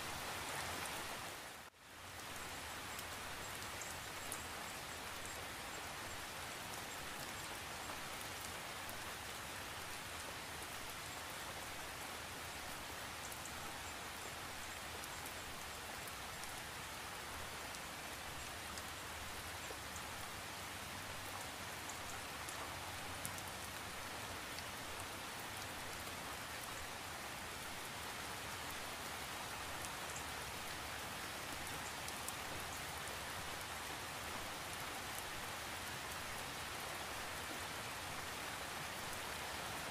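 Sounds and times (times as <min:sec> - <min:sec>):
steady rain hiss: 0:00.0 - 0:39.9
rain drop ticks: 0:02.2 - 0:05.4, 0:21.2 - 0:26.9, 0:34.8 - 0:36.4.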